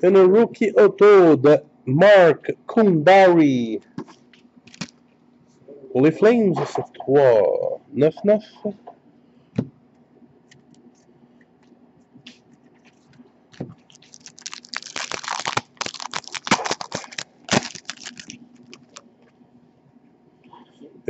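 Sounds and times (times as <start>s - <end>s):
foil wrapper crinkling: 4.7s - 5.0s, 13.8s - 19.0s.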